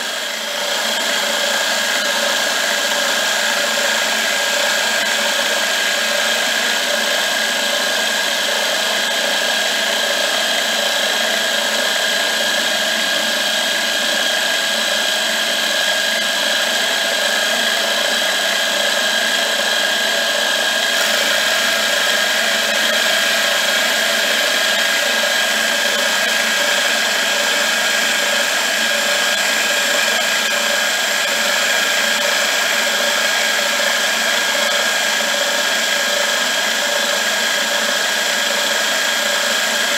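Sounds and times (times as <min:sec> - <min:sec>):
metal cutting noise: 0:00.0 - 0:39.9
milling machine whine: 0:00.0 - 0:39.9.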